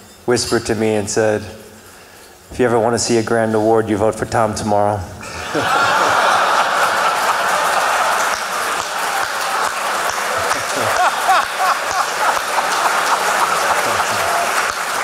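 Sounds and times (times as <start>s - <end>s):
audience applauding: 5.2s - 15.0s
audience laughing: 5.2s - 15.0s.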